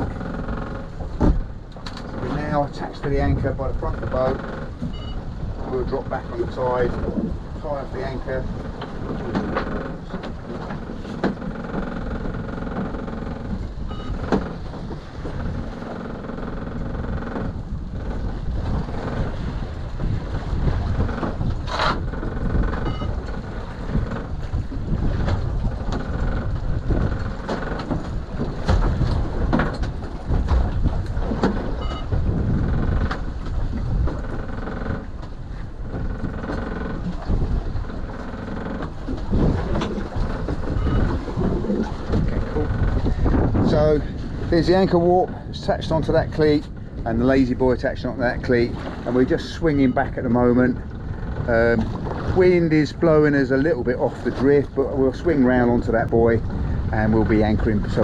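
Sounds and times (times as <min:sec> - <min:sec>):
sharp knocks and clicks: 0:00.0 - 0:02.4, 0:08.6 - 0:19.4, 0:20.8 - 0:43.8
small boat engine running: 0:00.0 - 0:45.7, 0:48.4 - 0:54.5
sea noise: 0:00.0 - 0:58.0
wind: 0:00.0 - 0:58.0.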